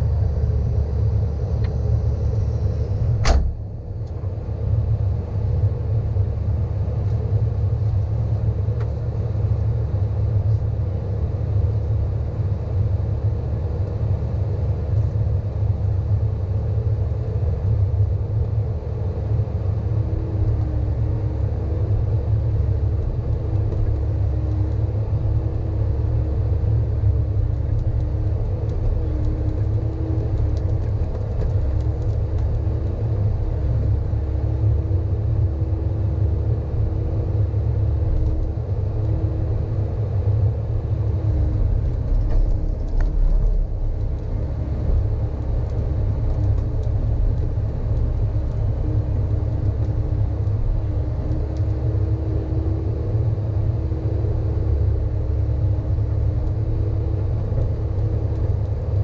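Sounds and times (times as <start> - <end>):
steady low hum: 0.0 - 59.0
excavator diesel engine running: 16.0 - 59.0.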